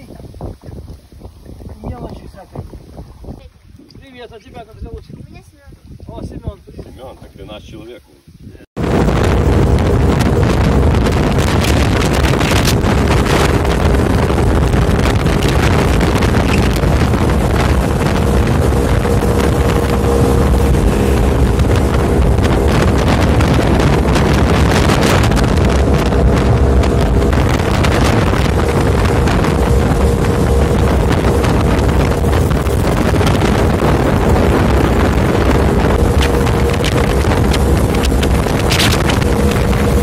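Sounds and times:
wind buffeting microphone: 0.0 - 40.0
motorboat engine running: 8.8 - 40.0.

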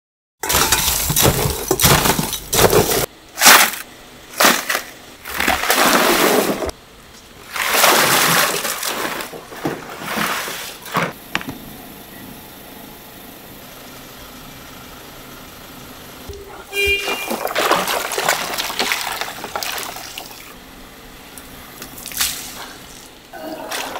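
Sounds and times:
ice and water splashing into tub: 4.4 - 6.8, 7.4 - 11.1, 16.7 - 20.6, 22.0 - 23.9.

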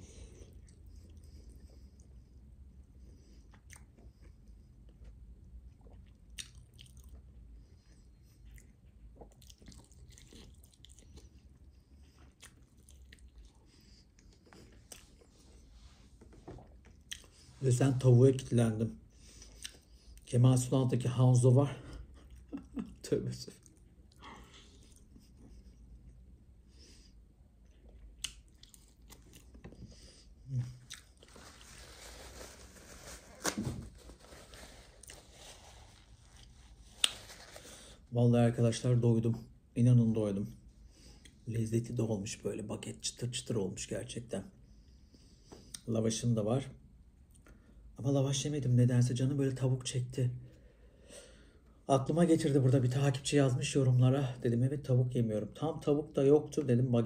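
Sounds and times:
chewing crispy chicken: 3.4 - 15.4, 27.8 - 31.8
crispy skin crunching: 30.6 - 37.9
paper napkin rustling: 31.2 - 38.0.

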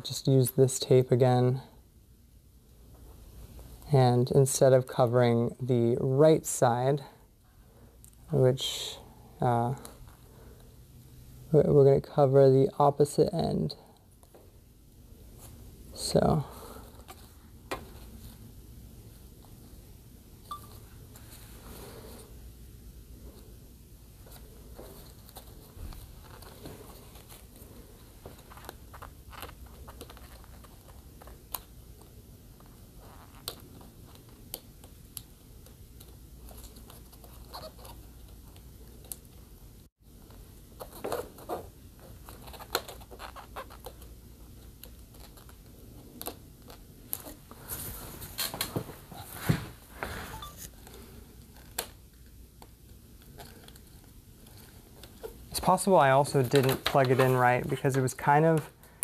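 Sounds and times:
small clicks and rustles: 24.2 - 39.5.

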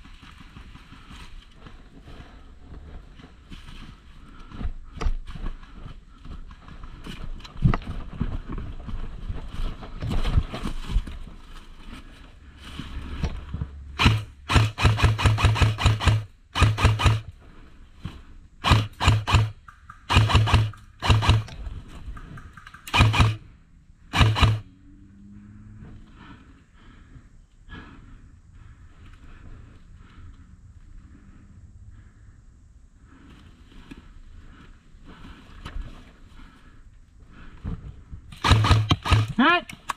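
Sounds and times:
airsoft rifle firing bursts: 14.0 - 17.3, 18.6 - 23.4, 24.1 - 24.6, 38.3 - 39.9.

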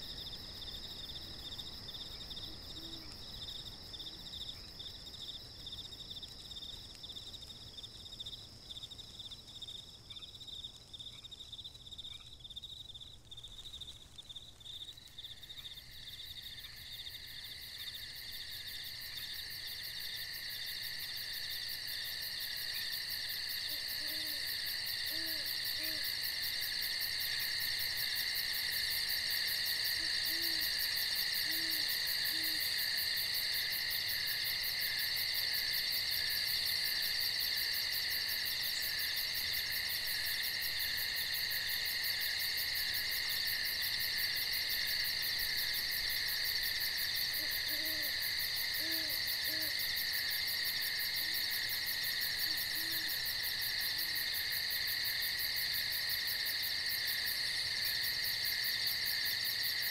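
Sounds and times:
night insects trilling: 0.0 - 59.9
owl hooting: 23.7 - 24.4, 25.0 - 26.1, 30.1 - 30.6, 31.4 - 32.6, 47.4 - 48.2, 48.8 - 49.7, 52.5 - 53.1.

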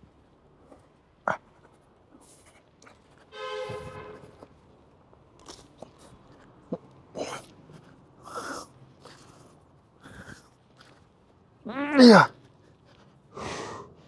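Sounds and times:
forceful exhalations: 13.3 - 14.0
man breathing hard: 13.3 - 14.0.

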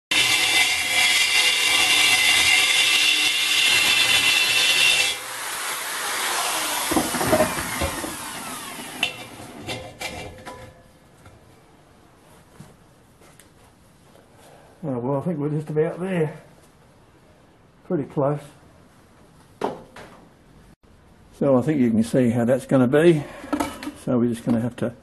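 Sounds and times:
drill winding down: 0.1 - 9.4
drill grinding steel: 0.1 - 10.1
knocks of drill set down: 6.8 - 8.2.

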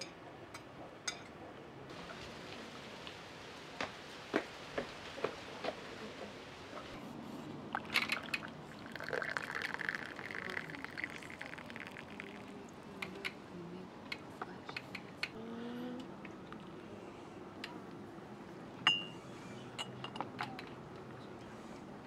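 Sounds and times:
tea pouring into glass: 7.8 - 12.8.

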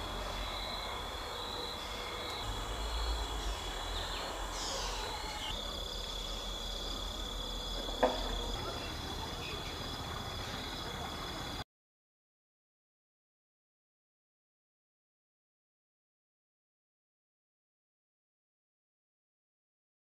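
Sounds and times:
crickets and insects chirring: 0.0 - 11.6.

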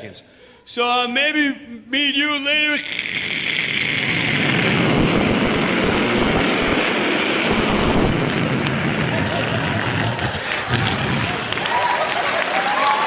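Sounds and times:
man imitating jet airliner: 2.4 - 11.5.

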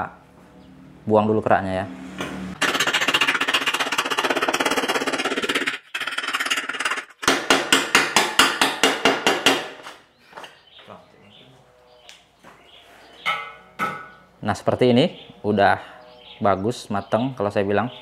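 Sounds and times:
chipping hammer striking metal: 7.2 - 9.8.

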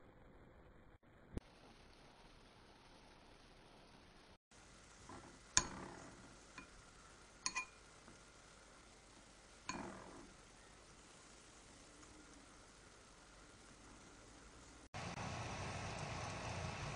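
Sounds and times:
chopsticks clinking against glass bowl: 7.5 - 7.8.

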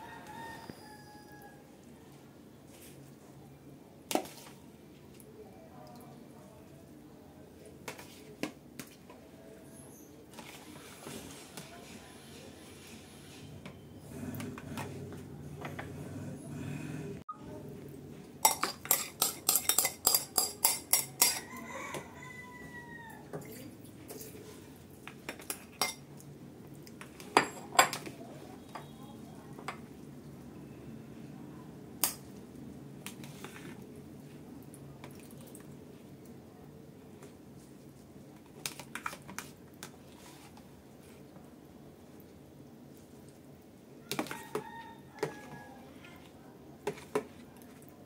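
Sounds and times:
metal spoon clinking against bowls: 18.4 - 21.6, 25.3 - 26.1, 27.3 - 28.1
water rinsing in a bowl: 34.6 - 35.9.

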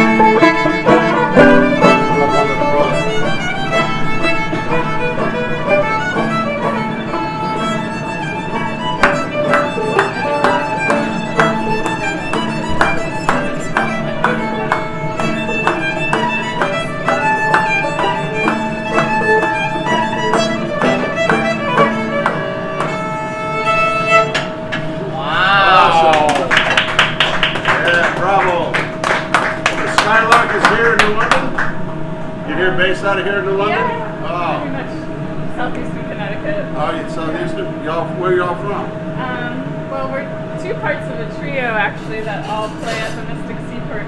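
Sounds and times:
banjo picked notes: 0.0 - 25.0
fiddle bowed melody: 0.0 - 25.0.

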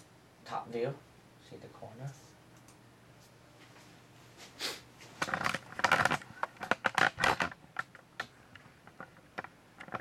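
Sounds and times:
sharp clicks and clatters: 5.2 - 10.0.

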